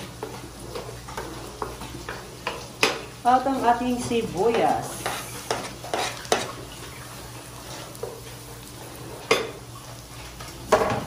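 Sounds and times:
onion sizzling in butter: 0:00.0 - 0:11.0
wooden spatula scraping cutting board: 0:04.5 - 0:06.6.

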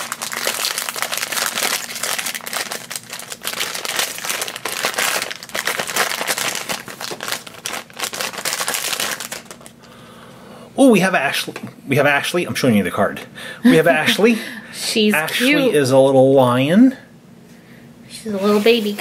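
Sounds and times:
foil crinkling and rustling: 0:00.0 - 0:09.8.

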